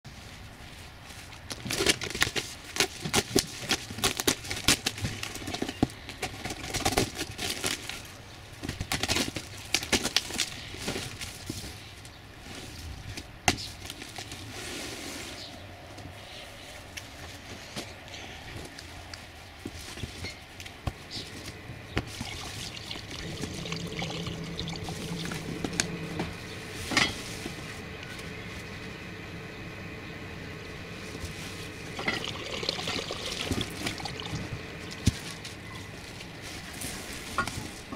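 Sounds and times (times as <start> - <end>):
cardboard rustling and scraping: 1.1 - 15.6, 35.0 - 37.9
faint low hum: 15.3 - 37.9.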